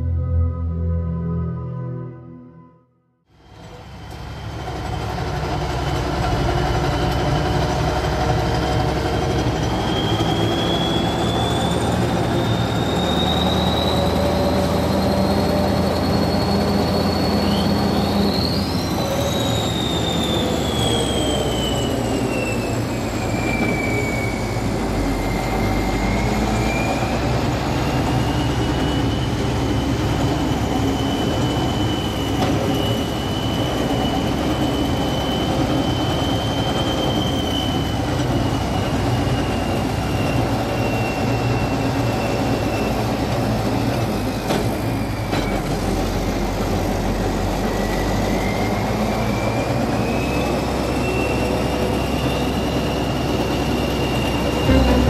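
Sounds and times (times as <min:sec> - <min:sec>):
high whine: 0:00.0 - 0:03.0, 0:54.4 - 0:55.0
tractor diesel engines rumbling: 0:03.4 - 0:55.0
sharp rising whistle: 0:08.8 - 0:46.4, 0:47.5 - 0:55.0.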